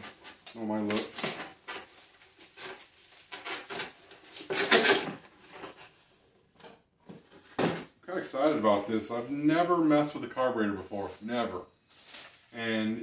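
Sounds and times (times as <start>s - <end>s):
box packaging rustling: 0.0s - 6.2s.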